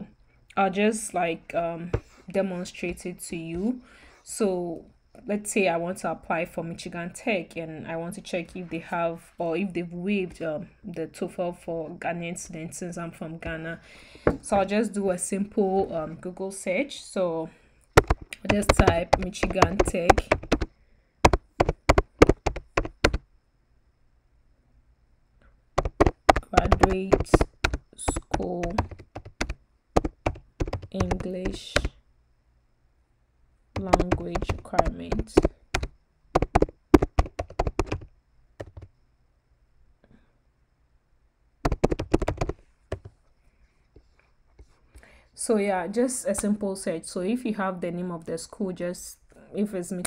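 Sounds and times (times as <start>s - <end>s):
keyboard key clacks: 18.0s - 20.7s, 21.3s - 23.2s, 25.8s - 31.9s, 33.8s - 38.9s, 41.7s - 43.1s.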